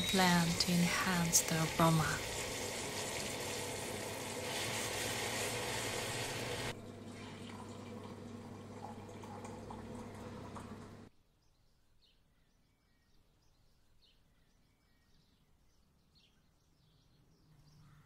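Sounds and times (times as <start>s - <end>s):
coffee pouring into mug: 0.0s - 11.1s
milk frother humming and hissing: 0.0s - 11.1s.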